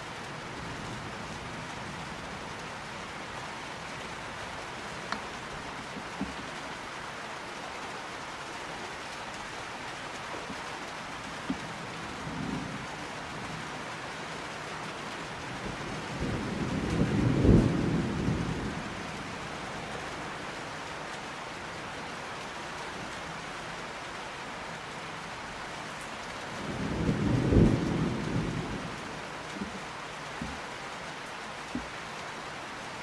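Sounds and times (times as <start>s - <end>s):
steady rain falling: 0.0s - 33.0s
thunder rumbling: 15.6s - 19.0s, 26.6s - 29.8s.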